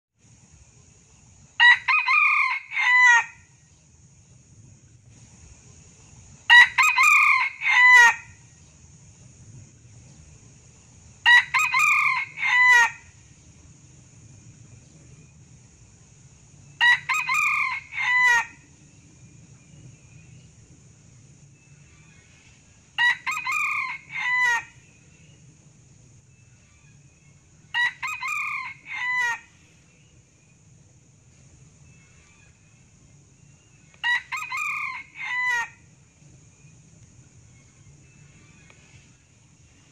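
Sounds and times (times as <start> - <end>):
rooster crowing: 1.6 - 3.5, 6.5 - 8.4, 11.2 - 13.1, 16.8 - 18.6, 23.0 - 24.8, 27.7 - 29.5, 34.0 - 35.8.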